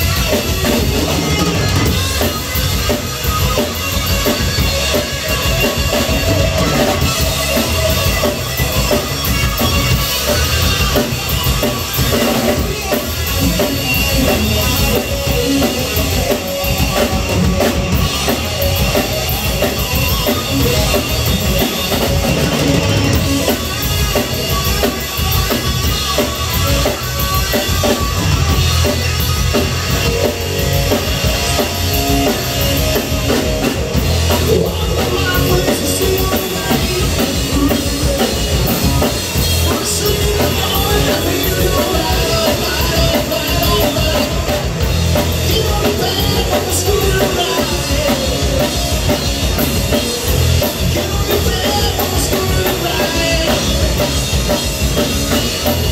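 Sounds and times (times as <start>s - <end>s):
drum kit: 0.0s - 55.9s
electric bass: 0.0s - 55.9s
electric guitar: 0.0s - 55.9s.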